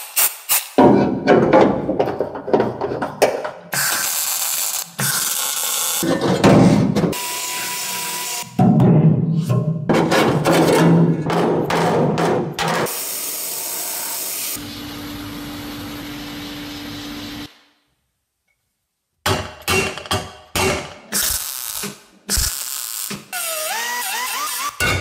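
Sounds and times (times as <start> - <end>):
metal knocks: 0.8 - 3.6
sharp welding bursts: 3.8 - 6.0, 21.1 - 24.7.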